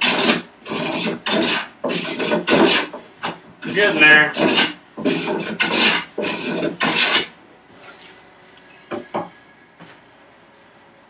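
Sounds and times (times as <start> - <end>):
hand plane shaving wood: 0.0 - 7.3
plane knocking on wooden workbench: 8.9 - 9.3.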